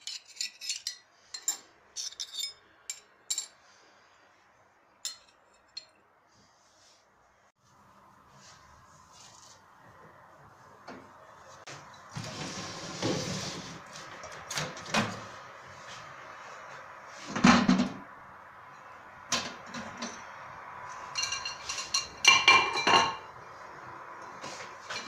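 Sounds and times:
glass plate clinking: 21.1s - 23.3s.

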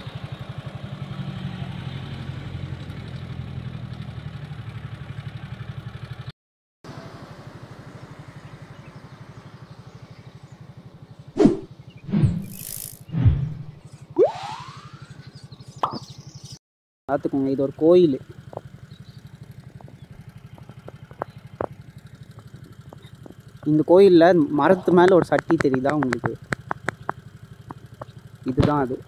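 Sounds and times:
engine idling: 2.8s - 6.3s, 7.6s - 12.0s, 17.1s - 29.0s
short rising whistle: 11.4s - 15.5s.

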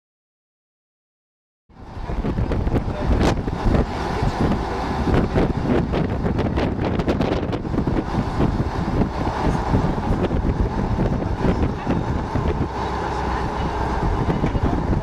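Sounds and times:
boat engine running: 1.7s - 15.0s
wind buffeting microphone: 1.7s - 15.0s
water rushing past: 1.8s - 15.0s.

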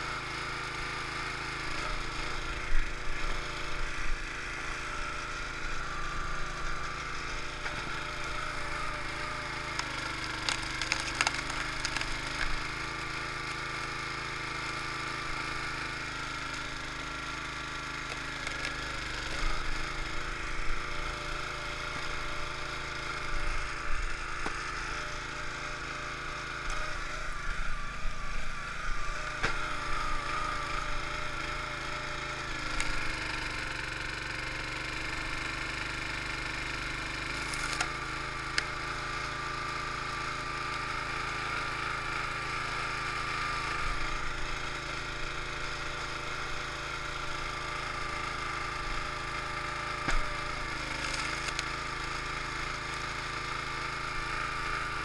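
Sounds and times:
small gasoline engine running: 0.0s - 55.0s
wood cracking under splitter: 5.9s - 20.1s, 29.2s - 41.4s, 46.7s - 53.6s.

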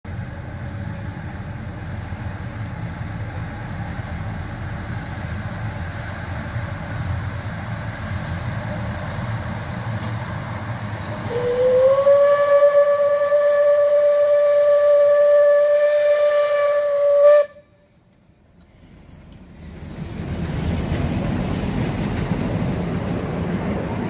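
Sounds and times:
steam locomotive rumble: 0.1s - 24.0s
steam whistle: 11.1s - 17.8s.

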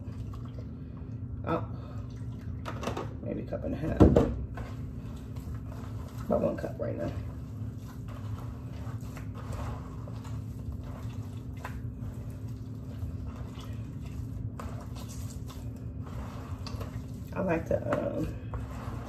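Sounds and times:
steady low hum: 0.0s - 19.0s
hands squishing raw meat: 7.2s - 19.0s.

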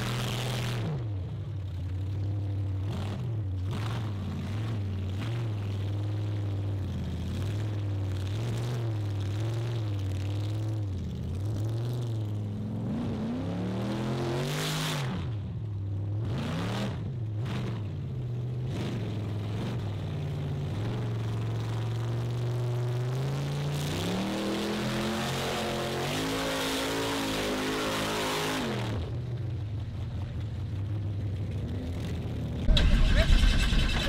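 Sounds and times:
car engine revving: 32.6s - 34.0s.

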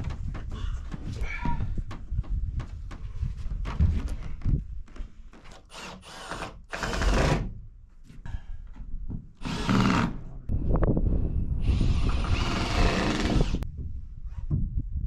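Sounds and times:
power drill running: 5.7s - 7.4s, 9.4s - 10.1s, 11.7s - 13.6s.

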